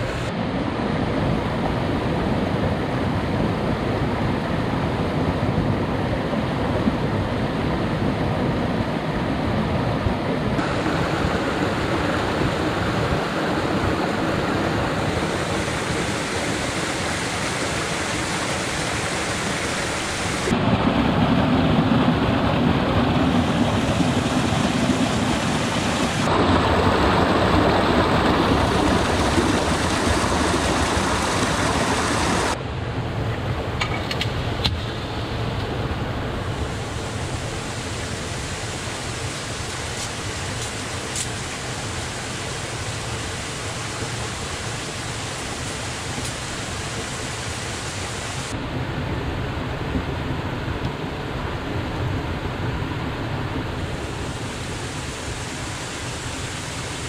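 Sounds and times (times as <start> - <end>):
water rushing over rocks: 0.0 - 6.2, 10.5 - 32.6, 33.9 - 57.0.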